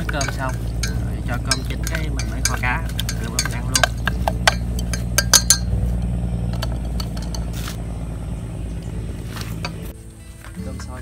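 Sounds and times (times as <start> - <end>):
utensil clinking against dish: 0.0 - 5.8, 6.5 - 7.6
low rumble: 0.0 - 11.0.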